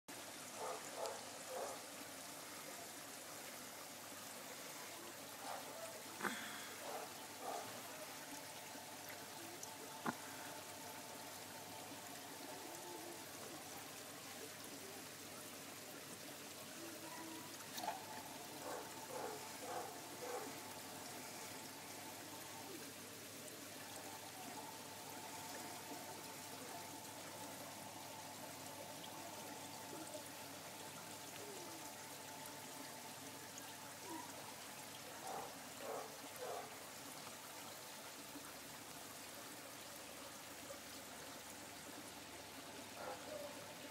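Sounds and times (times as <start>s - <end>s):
faint steady tone: 0.1s - 43.9s
water pouring into pond: 0.1s - 43.9s.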